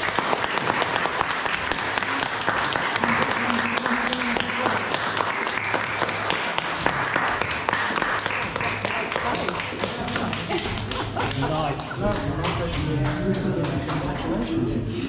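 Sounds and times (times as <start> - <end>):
people applauding: 0.0 - 14.8.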